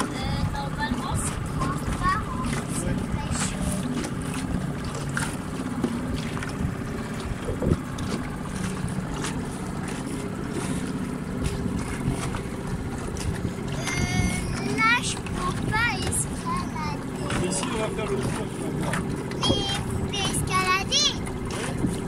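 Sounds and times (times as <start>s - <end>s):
outboard motor running: 0.0s - 22.0s
wind on microphone: 6.2s - 8.9s, 11.5s - 16.1s, 18.8s - 20.6s, 21.3s - 22.0s.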